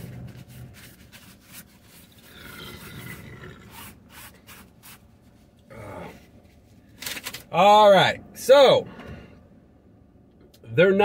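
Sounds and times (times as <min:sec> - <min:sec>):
rubbing and rustling handling noise: 0:00.0 - 0:07.6.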